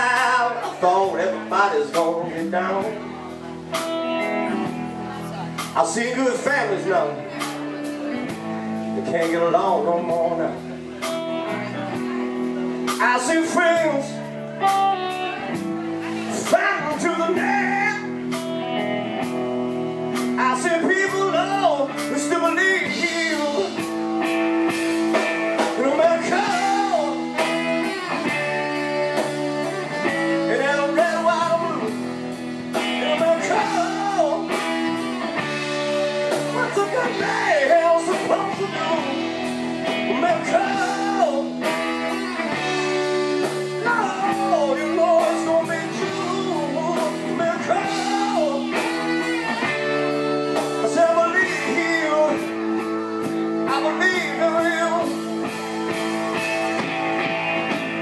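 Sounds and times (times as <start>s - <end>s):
drums: 0.0s - 58.0s
electric guitars: 0.0s - 58.0s
saxophone solo: 26.5s - 33.1s, 41.7s - 44.8s, 47.8s - 57.8s.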